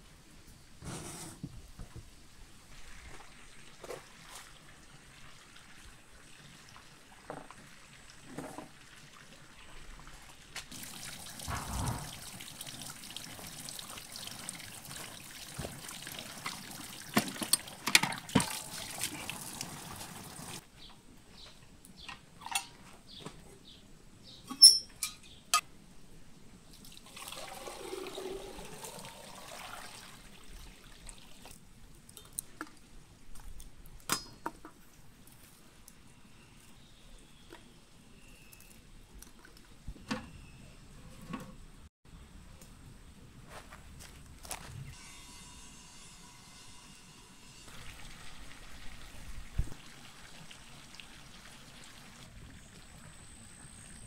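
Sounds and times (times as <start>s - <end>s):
water pouring and splashing: 2.6s - 20.6s, 26.7s - 33.6s, 47.6s - 54.0s.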